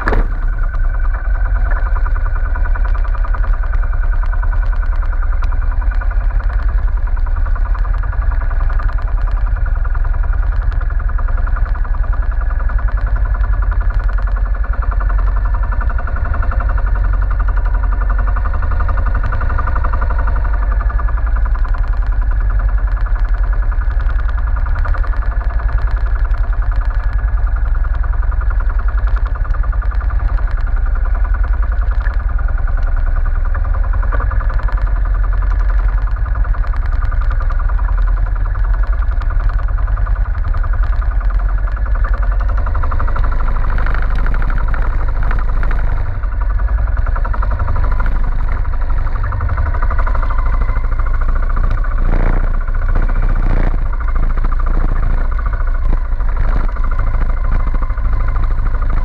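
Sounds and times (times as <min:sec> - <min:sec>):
boat diesel engine chugging: 0:00.0 - 0:59.0.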